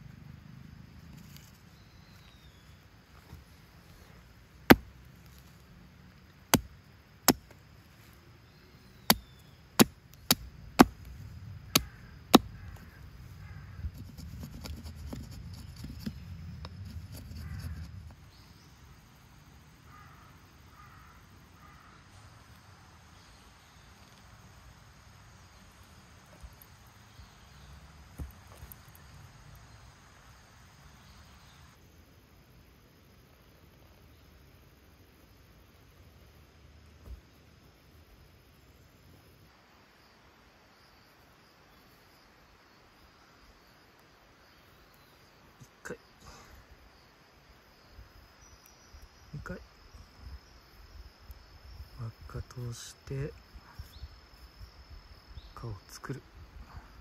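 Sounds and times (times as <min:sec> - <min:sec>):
tent pegs hammered into ground: 0:04.6 - 0:04.9, 0:06.5 - 0:07.6, 0:09.1 - 0:11.1, 0:11.7 - 0:12.9.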